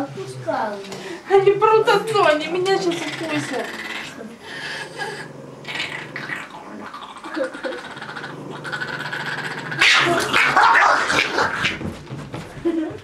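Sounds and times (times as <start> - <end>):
dogs growling and snarling: 1.9 - 12.5
dogs scuffling: 9.8 - 13.0.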